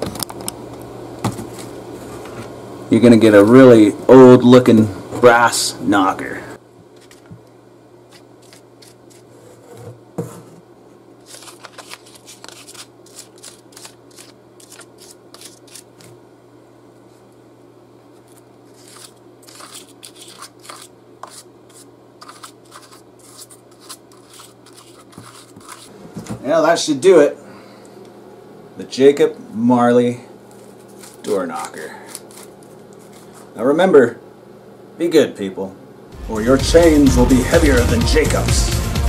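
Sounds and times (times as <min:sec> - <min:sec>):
paintbrush bristles scratching: 0:08.1 - 0:09.3, 0:11.3 - 0:15.9, 0:18.7 - 0:25.9, 0:30.5 - 0:31.5, 0:32.1 - 0:33.6.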